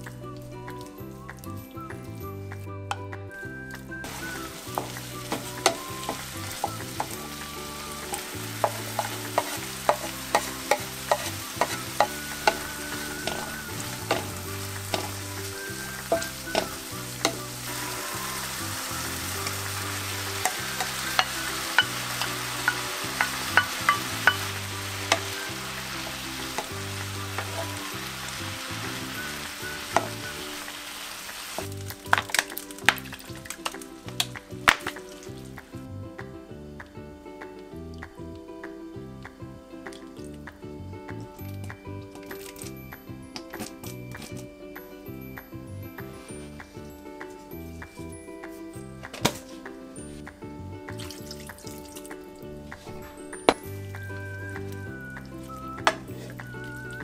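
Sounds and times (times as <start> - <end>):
food sizzling in a frying pan: 4.0 - 35.4
spatula tapping and scraping pan: 4.2 - 7.2, 8.0 - 17.6, 19.4 - 27.8, 29.8 - 30.3.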